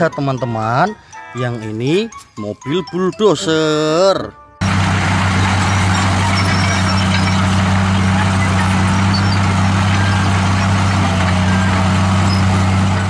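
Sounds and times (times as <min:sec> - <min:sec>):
bulldozer diesel engine running: 0:04.6 - 0:13.0.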